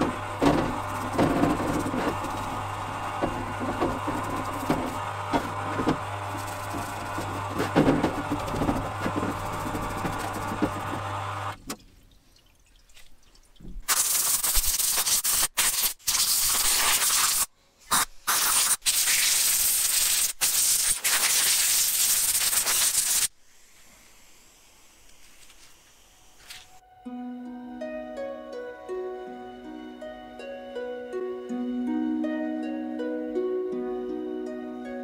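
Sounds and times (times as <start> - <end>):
stiff brush scrubbing metal: 0.0 - 11.3
pump humming: 0.0 - 12.2
compressed air hissing: 13.9 - 26.8.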